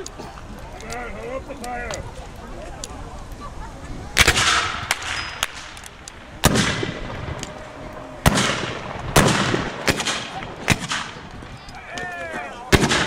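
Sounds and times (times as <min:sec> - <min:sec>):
distant gunshots: 0:04.2 - 0:05.7, 0:06.4 - 0:07.4, 0:08.2 - 0:11.4, 0:12.7 - 0:13.0
musket shots: 0:04.2 - 0:07.2, 0:08.2 - 0:11.4, 0:12.7 - 0:13.0.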